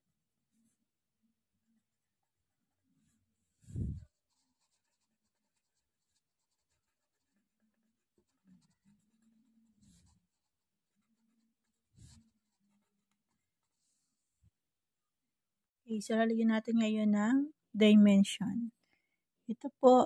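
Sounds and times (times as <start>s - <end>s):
pencil scratching on paper: 1.8s - 14.4s.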